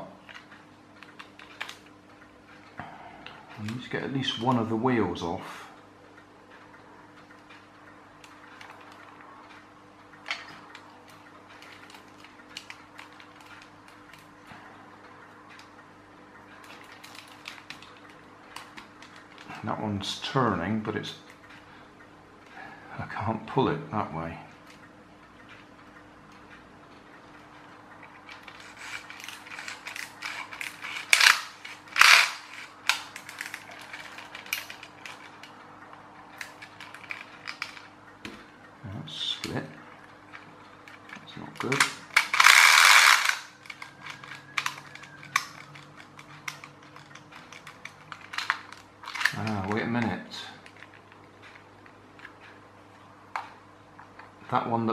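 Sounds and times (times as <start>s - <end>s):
small plastic parts clicking: 16.6s - 19.6s, 28.2s - 35.6s, 36.3s - 38.4s, 40.3s - 52.4s.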